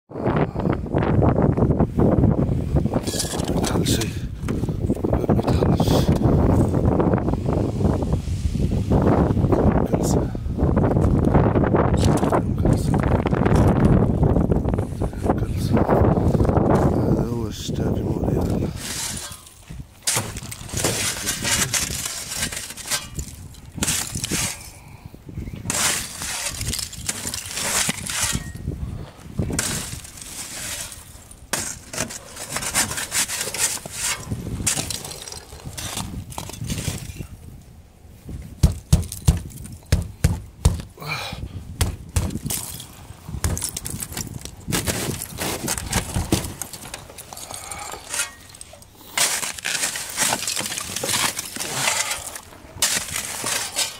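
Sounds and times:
ice and snow crunching: 16.0 - 24.8, 25.7 - 40.2, 42.0 - 53.9.

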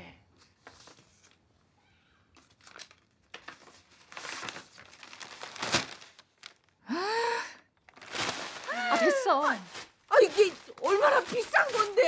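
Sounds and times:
stiff paper rustling and crinkling: 2.4 - 6.8, 7.9 - 12.0.

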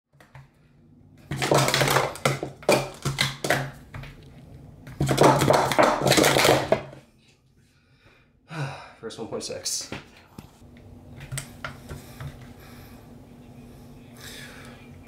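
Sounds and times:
plastic cups clattering: 1.2 - 4.2, 5.0 - 7.0.

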